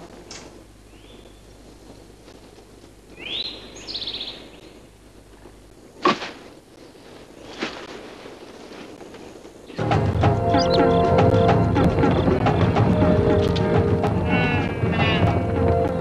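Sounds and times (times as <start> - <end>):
bird call: 9.7 - 12.4.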